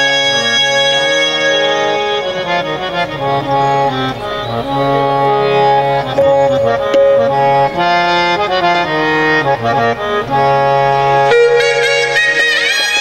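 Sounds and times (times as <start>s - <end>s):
harmonium playing chords: 0.0s - 13.0s.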